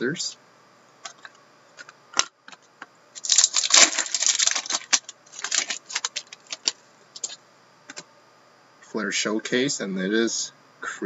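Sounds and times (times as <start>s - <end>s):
foil wrapper crinkling: 3.2s - 7.4s.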